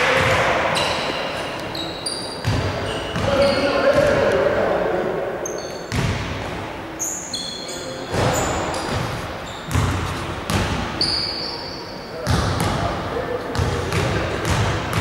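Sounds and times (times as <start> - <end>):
high shoe squeaks: 0.6 - 4.0, 5.4 - 6.0, 7.0 - 12.0
basketball bouncing on hardwood: 9.7 - 10.8.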